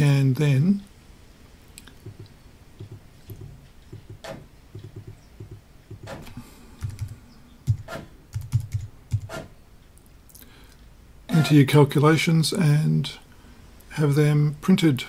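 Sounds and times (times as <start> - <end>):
typing on computer keyboard: 6.8 - 9.4.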